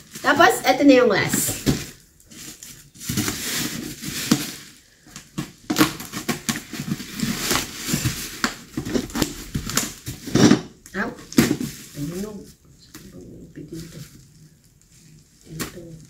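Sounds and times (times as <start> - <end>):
plastic crinkling and rustling: 0.0 - 16.0
scissors cutting plastic: 2.6 - 10.6.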